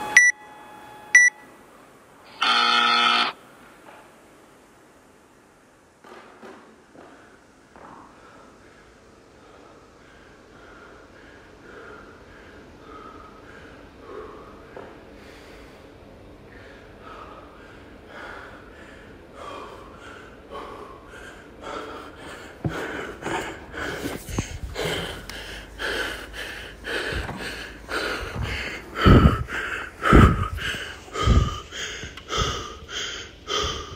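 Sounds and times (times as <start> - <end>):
man panting hard: 8.2 - 15.8, 16.5 - 33.9.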